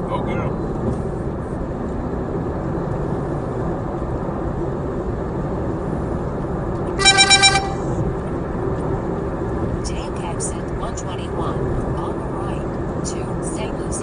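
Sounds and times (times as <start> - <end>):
car road and engine noise: 0.0 - 14.0
short high beeps: 7.0 - 8.0.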